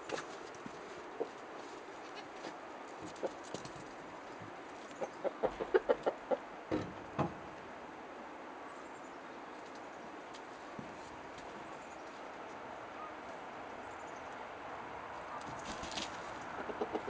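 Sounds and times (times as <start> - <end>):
hen clucking: 1.0 - 3.9, 4.9 - 6.5, 16.4 - 17.0.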